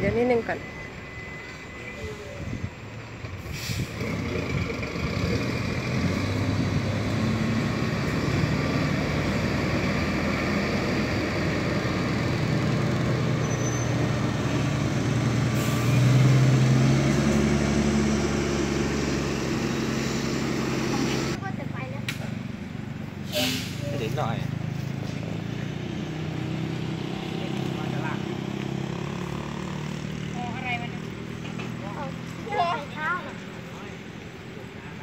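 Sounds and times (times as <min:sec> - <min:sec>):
diesel truck engine revving: 0:02.5 - 0:35.0
air brake hisses: 0:03.4 - 0:04.0, 0:23.2 - 0:24.0.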